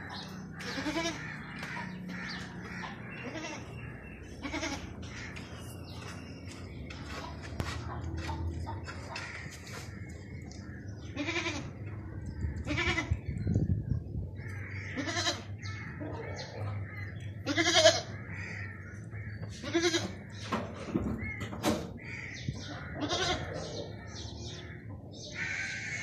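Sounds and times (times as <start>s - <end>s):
goat bleating: 0.6s - 1.6s, 2.6s - 5.1s, 11.1s - 11.8s, 12.6s - 13.2s, 14.9s - 15.6s, 17.4s - 18.2s, 19.5s - 20.2s, 23.0s - 23.6s.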